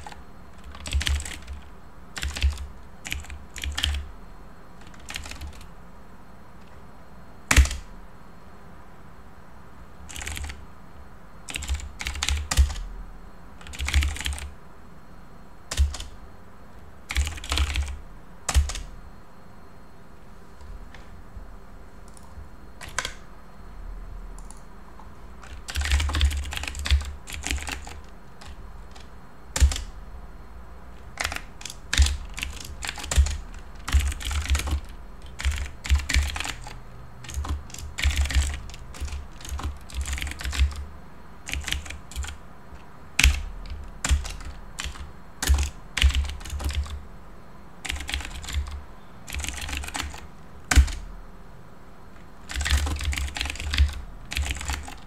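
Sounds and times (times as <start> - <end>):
computer keyboard typing: 0.0 - 4.1, 4.8 - 5.7, 7.5 - 7.9, 10.1 - 10.6, 11.5 - 12.9, 13.6 - 14.6, 15.7 - 16.2, 17.1 - 18.9, 22.1 - 23.3, 25.4 - 30.0, 31.0 - 47.0, 47.8 - 51.1, 52.3 - 55.0.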